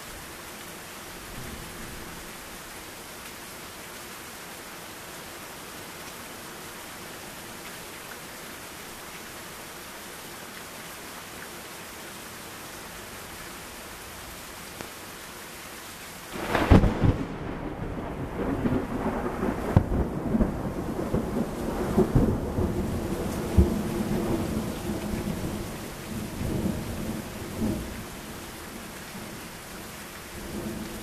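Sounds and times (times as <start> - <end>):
heavy rain: 0.0 - 31.0
thunder cracking and rumbling: 16.4 - 28.0.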